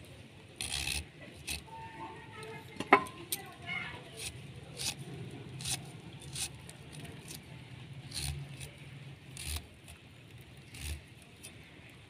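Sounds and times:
knife slicing beetroot: 0.6 - 1.7, 4.2 - 5.0, 5.6 - 7.5, 8.1 - 8.7, 9.4 - 9.7.

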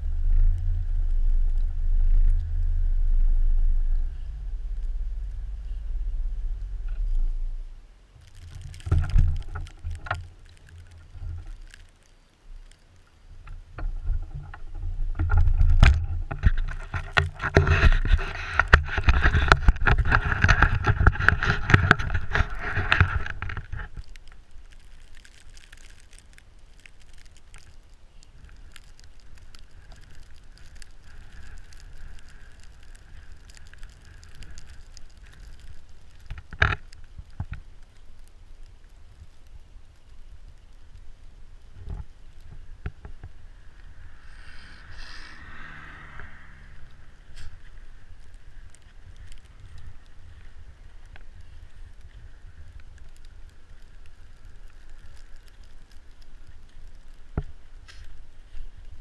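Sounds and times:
tyres crunching snow: 14.6 - 59.0.

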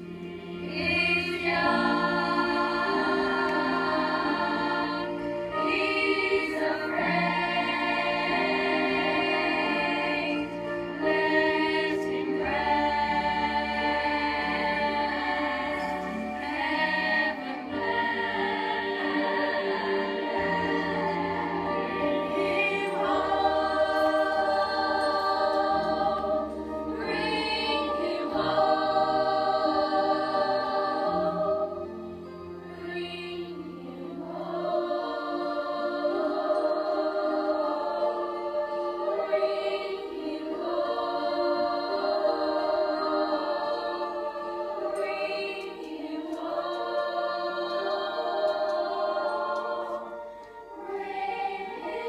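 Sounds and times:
children's choir singing: 0.0 - 52.0
instrumental accompaniment: 0.0 - 52.0.

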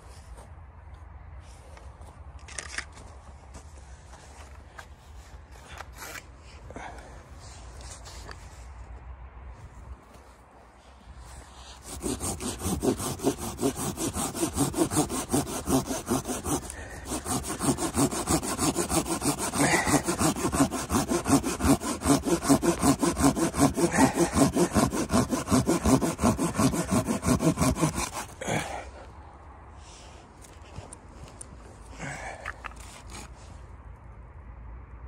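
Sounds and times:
hand saw cutting wood: 5.6 - 6.3, 11.6 - 28.8, 32.0 - 33.4.

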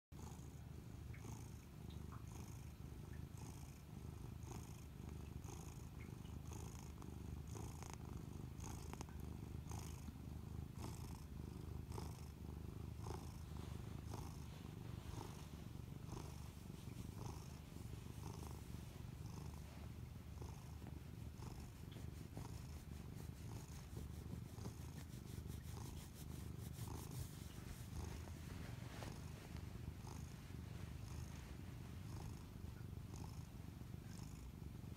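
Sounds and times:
cat purring: 0.2 - 34.9.

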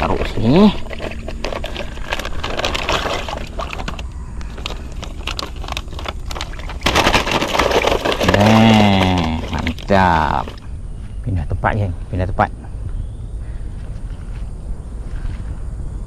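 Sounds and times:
handling rustling and scraping: 0.0 - 10.6.

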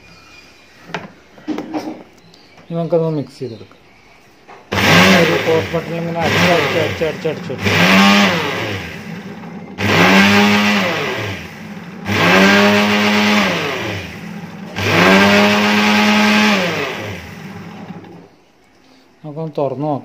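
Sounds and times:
mixer grinder motor whine: 4.7 - 18.3.

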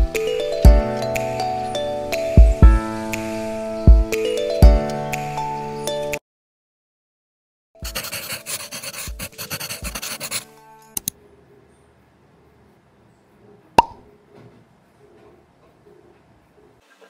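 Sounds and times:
pencil scratching on paper: 7.8 - 10.6.

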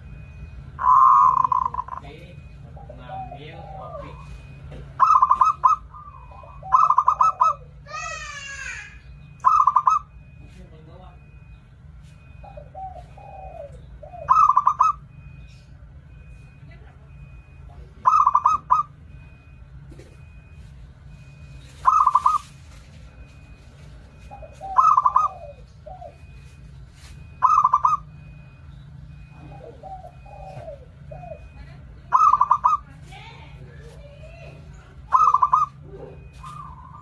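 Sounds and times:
dove stuttering coos: 0.1 - 7.8, 9.2 - 10.3, 12.2 - 15.4, 17.1 - 19.6, 21.2 - 22.6, 24.1 - 26.4, 27.2 - 33.1, 33.8 - 37.0.

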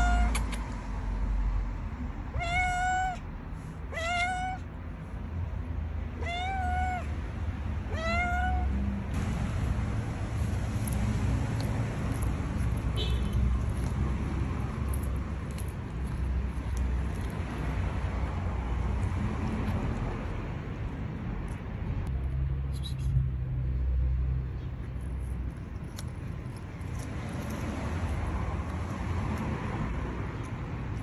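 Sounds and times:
cat meowing: 0.0 - 0.5, 2.3 - 4.8, 6.1 - 7.2, 7.8 - 8.8.

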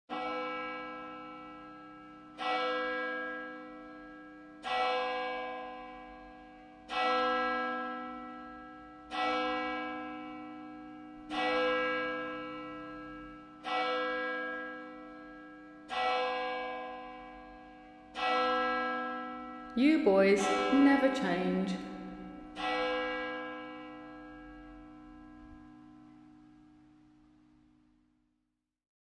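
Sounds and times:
large bell tolling: 18.2 - 25.6.

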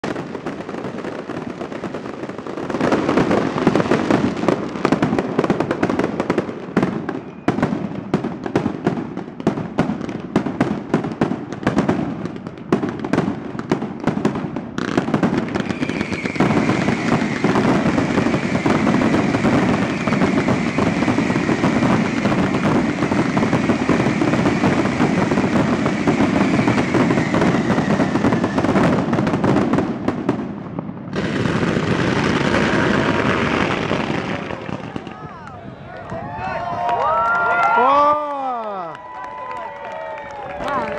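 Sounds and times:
fireworks crackling bangs: 0.0 - 36.9
faint high whistle: 7.1 - 7.6, 15.7 - 17.4.

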